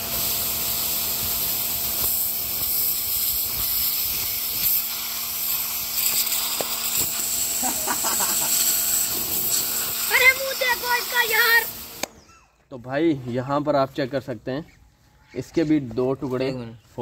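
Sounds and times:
hissing water jet: 0.0s - 12.2s
pressure washer pump humming: 0.0s - 12.2s.

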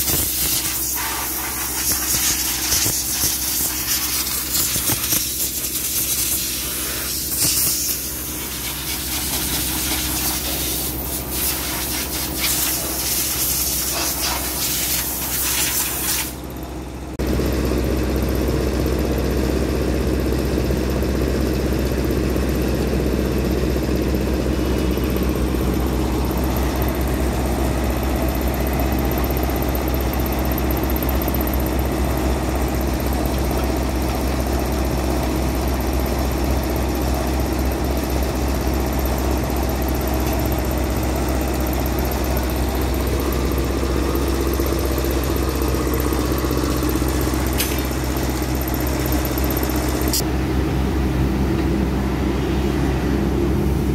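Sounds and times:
motor idling hum: 16.4s - 52.2s.

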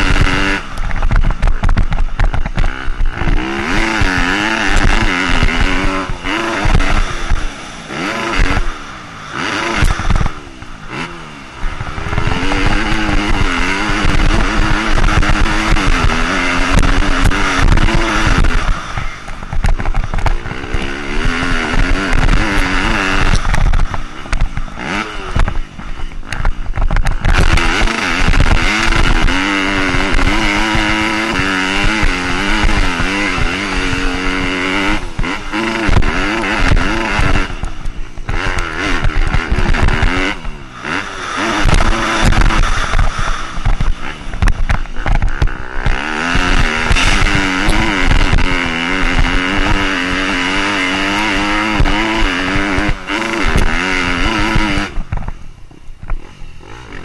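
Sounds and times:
motorcycle engine revving: 0.0s - 57.0s
wind noise on camera: 0.0s - 57.0s.

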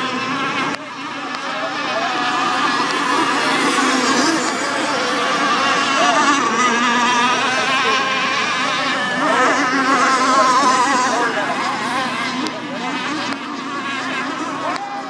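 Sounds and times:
racing boat engines whining: 0.0s - 15.0s.

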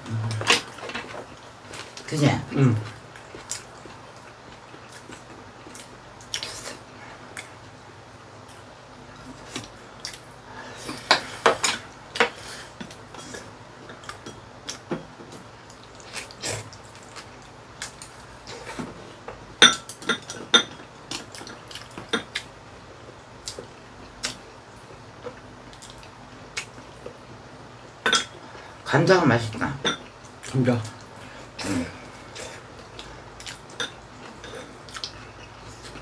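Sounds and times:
chewing: 32.3s - 36.0s.

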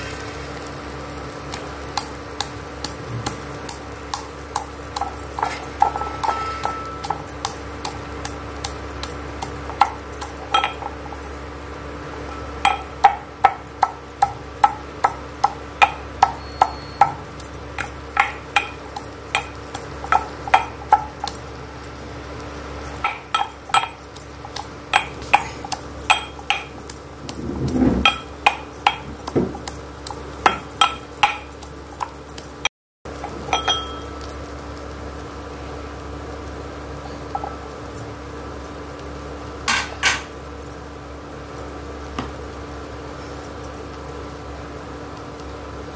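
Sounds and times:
metal pestle pounding in steel bowl: 2.0s - 11.2s, 12.6s - 21.4s, 23.0s - 32.5s.

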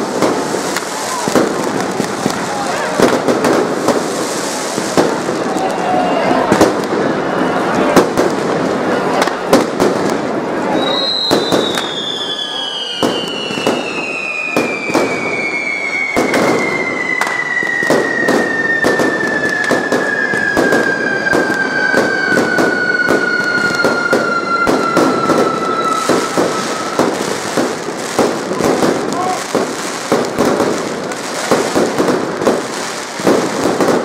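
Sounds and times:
fireworks bangs and crackling: 0.0s - 34.0s
high whistle sliding down: 10.7s - 27.7s.

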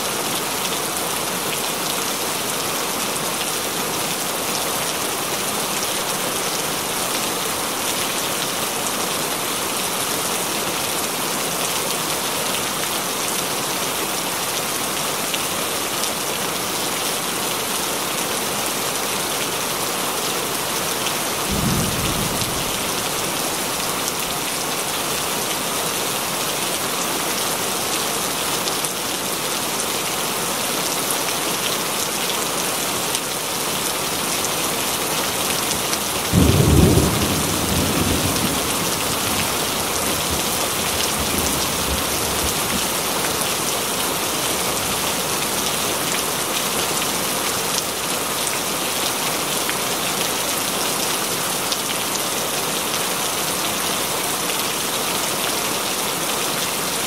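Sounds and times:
steady rain: 0.0s - 57.0s
thunder rumbling: 21.4s - 23.9s, 36.3s - 42.8s.

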